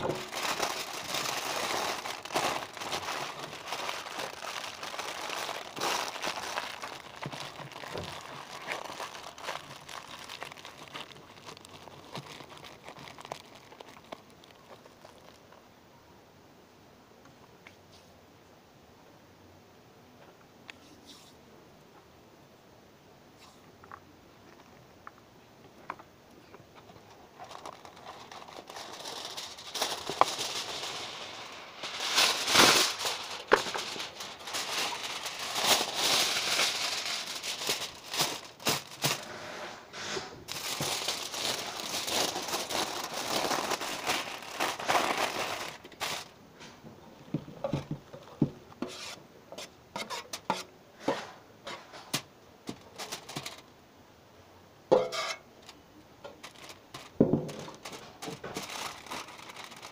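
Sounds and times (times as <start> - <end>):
aluminium foil crinkling: 0.0 - 15.6, 26.8 - 39.5, 40.5 - 46.4, 52.1 - 53.7, 55.3 - 59.9.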